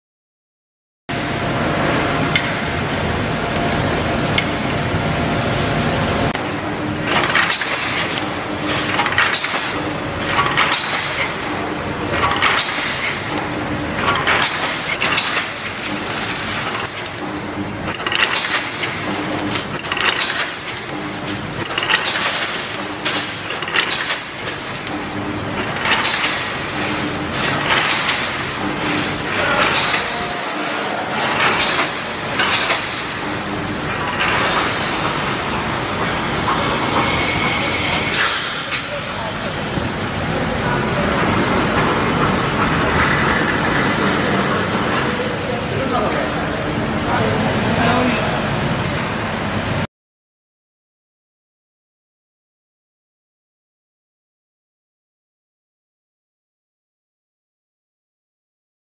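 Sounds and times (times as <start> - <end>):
welding machine clattering: 6.3 - 47.2.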